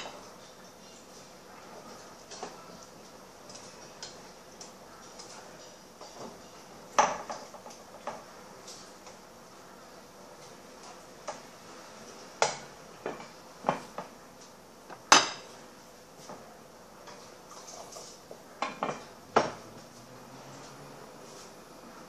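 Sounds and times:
dishes and pots clattering: 0:00.0 - 0:01.1, 0:03.5 - 0:09.2, 0:12.4 - 0:14.2, 0:14.9 - 0:15.6, 0:17.0 - 0:19.8.

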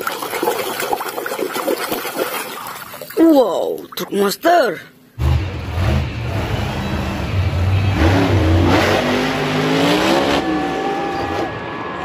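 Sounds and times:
truck engine revving hard: 0:05.2 - 0:12.0.

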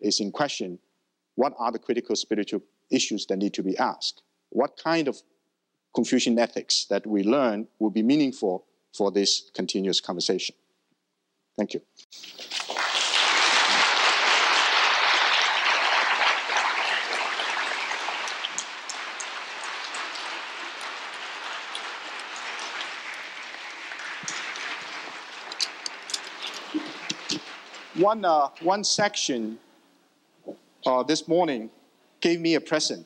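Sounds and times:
audience applauding: 0:12.5 - 0:28.6.

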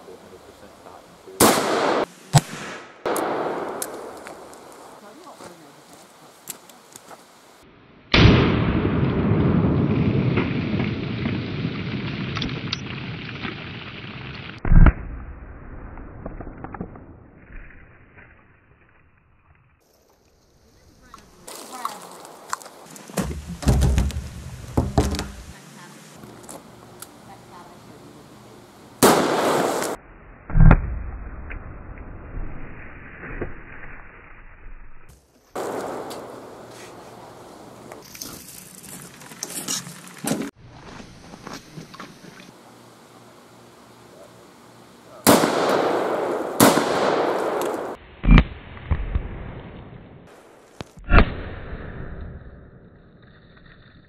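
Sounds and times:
revolver gunshot with echo: 0:01.4 - 0:04.4, 0:29.0 - 0:30.0, 0:45.2 - 0:49.2
revolver gunshot: 0:01.4 - 0:04.6, 0:08.1 - 0:10.5, 0:14.6 - 0:15.2, 0:29.0 - 0:31.4, 0:35.6 - 0:36.9, 0:45.2 - 0:50.3, 0:51.0 - 0:52.2.

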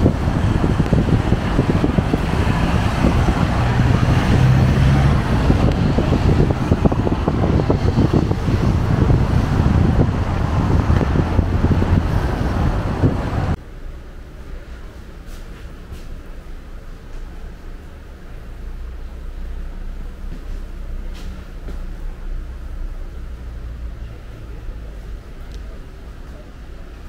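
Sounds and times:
wind buffeting microphone: 0:00.0 - 0:13.6
steam locomotive rumble: 0:00.0 - 0:27.0.

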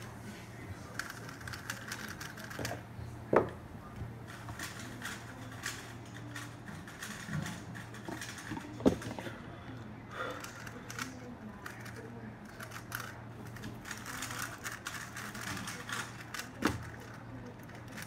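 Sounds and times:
steady low hum: 0:00.0 - 0:18.0
speed cubes clicking: 0:01.0 - 0:02.7, 0:10.4 - 0:18.0.

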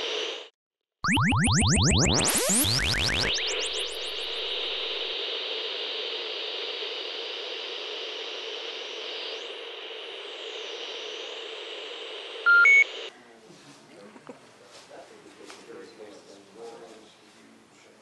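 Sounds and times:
television static hiss: 0:03.9 - 0:17.0.

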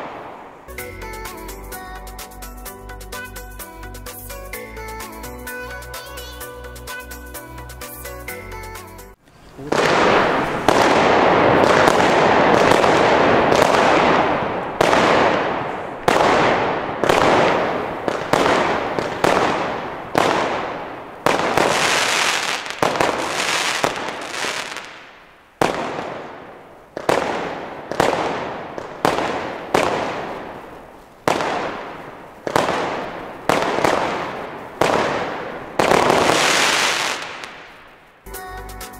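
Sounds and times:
firework bangs: 0:00.0 - 0:01.5, 0:09.2 - 0:38.3
fireworks crackling: 0:00.0 - 0:38.7.

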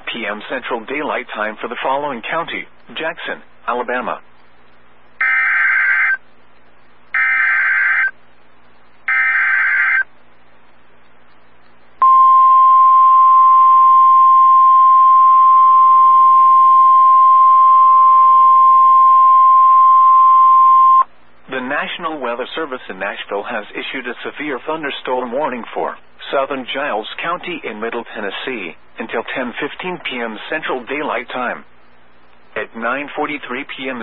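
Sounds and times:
steady warning alarm tone: 0:05.2 - 0:06.2, 0:07.2 - 0:08.1, 0:09.1 - 0:10.1, 0:12.0 - 0:21.0.

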